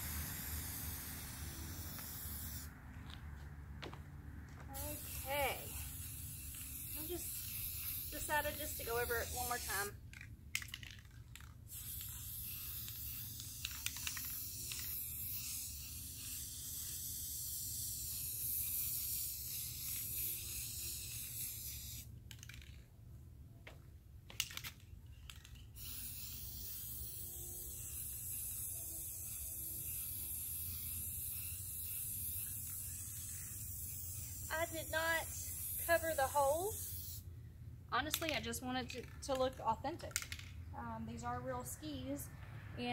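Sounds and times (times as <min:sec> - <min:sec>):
spray paint can hissing: 0:00.0 - 0:03.2, 0:04.7 - 0:22.8, 0:24.3 - 0:37.3.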